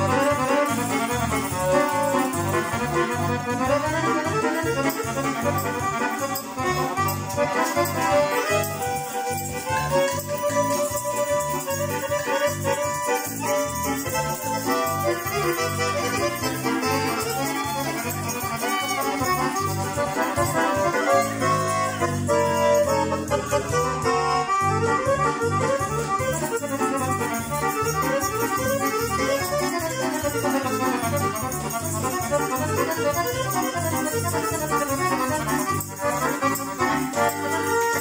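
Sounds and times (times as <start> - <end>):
accordion folk dance music: 0.0 - 38.0.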